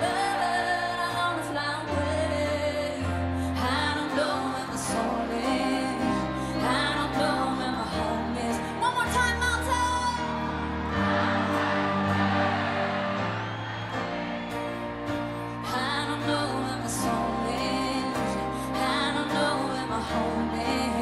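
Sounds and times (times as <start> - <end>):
woman singing into a microphone: 0.0 - 10.4, 15.6 - 21.0
live pop band playing: 0.0 - 21.0.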